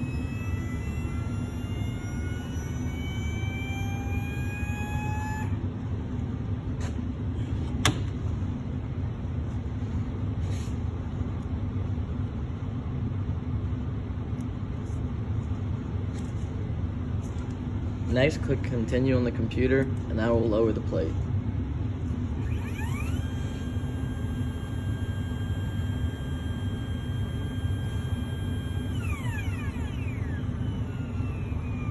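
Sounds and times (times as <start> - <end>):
electric motor whining: 0.0 - 5.7, 22.2 - 31.9
laboratory equipment hum: 0.0 - 31.9.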